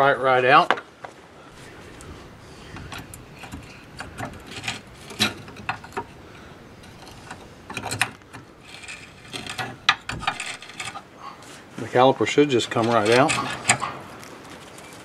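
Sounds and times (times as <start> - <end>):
screwdriver scraping metal caliper: 2.7 - 6.2, 6.8 - 11.1, 12.6 - 14.0.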